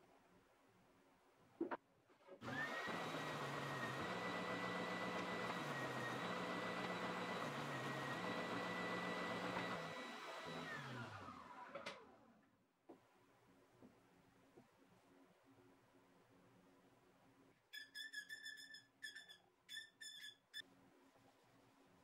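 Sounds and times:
sander motor whining: 0:02.4 - 0:12.2.

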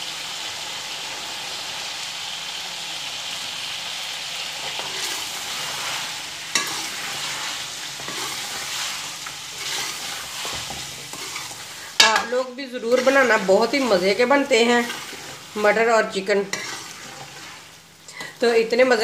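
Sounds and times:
food sizzling in a pot: 0:00.0 - 0:19.0
metal ladle stirring: 0:08.0 - 0:15.6, 0:16.5 - 0:17.6.

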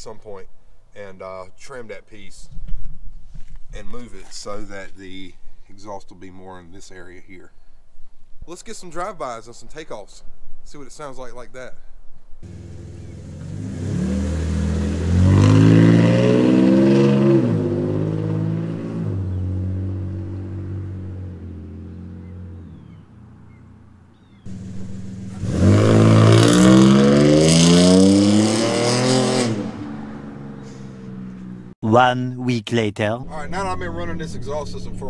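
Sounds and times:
truck engine revving: 0:12.4 - 0:31.8, 0:33.3 - 0:35.0.

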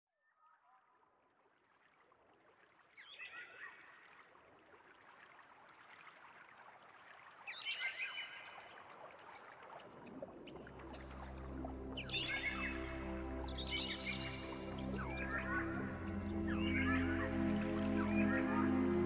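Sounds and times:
running water: 0:01.4 - 0:19.0
birds chirping: 0:07.5 - 0:19.0.

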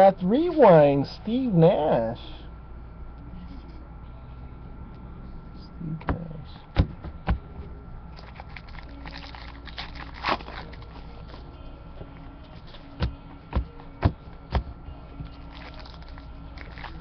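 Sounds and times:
low hum: 0:00.0 - 0:17.0
cards rustling: 0:08.2 - 0:11.5, 0:15.4 - 0:17.0.

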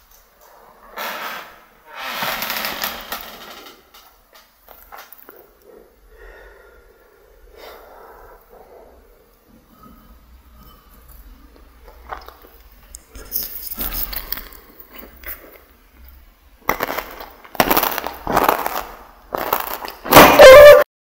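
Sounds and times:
crunching and chewing food: 0:04.6 - 0:05.8, 0:08.9 - 0:20.3.

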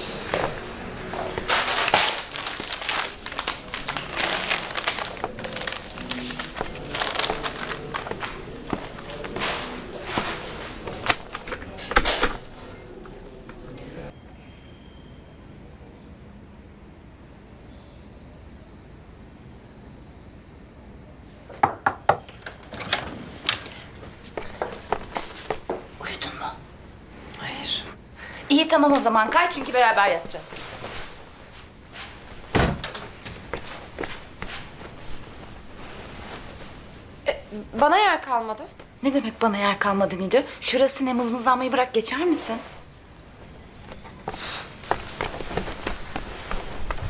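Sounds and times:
rustling and crinkling: 0:00.0 - 0:13.6, 0:22.3 - 0:26.4, 0:28.6 - 0:47.0.

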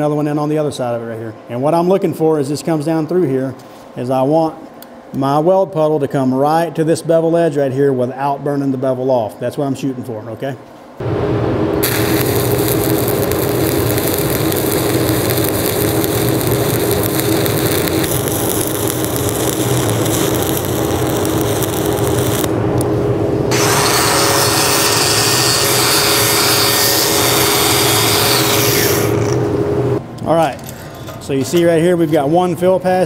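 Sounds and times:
welding arc burning: 0:11.0 - 0:30.0.

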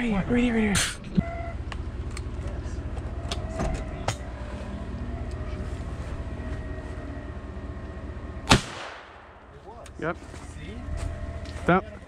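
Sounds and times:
vehicle engine idling: 0:00.0 - 0:12.0
shotgun shot: 0:08.5 - 0:09.4.

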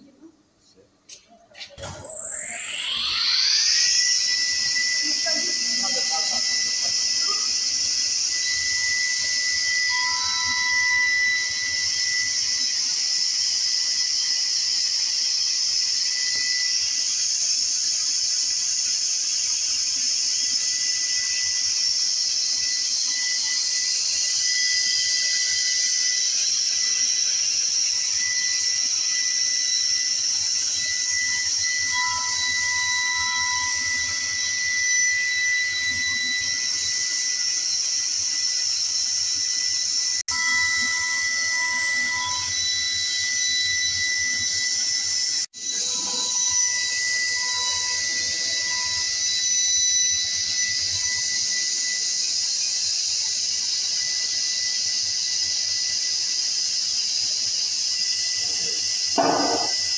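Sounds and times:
circular saw blade whining: 0:01.7 - 0:59.9.

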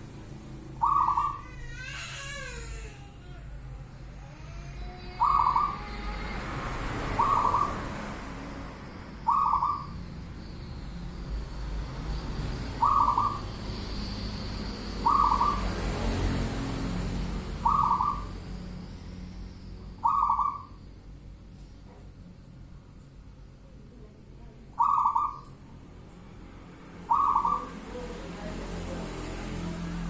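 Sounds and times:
dove cooing: 0:00.8 - 0:01.4, 0:04.8 - 0:06.1, 0:07.1 - 0:07.8, 0:09.3 - 0:10.0, 0:12.8 - 0:13.5, 0:15.0 - 0:15.8, 0:17.6 - 0:18.4, 0:20.0 - 0:20.8, 0:24.8 - 0:25.4, 0:27.1 - 0:28.1.

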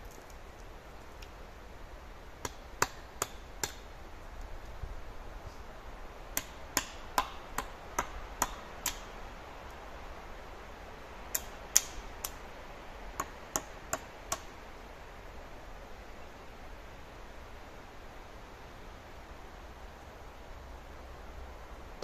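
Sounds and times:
hand tool striking wood: 0:06.4 - 0:09.0.

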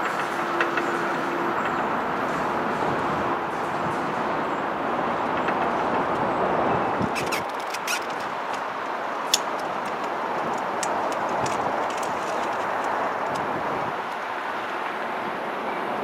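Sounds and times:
diesel locomotive engine running: 0:00.0 - 0:07.2
sharp clicks: 0:07.1 - 0:13.5.

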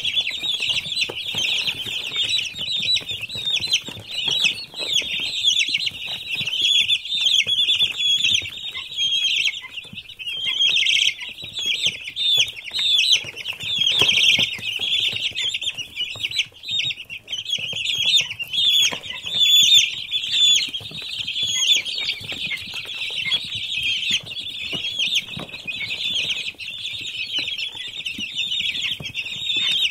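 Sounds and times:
chicks peeping: 0:00.0 - 0:29.9.

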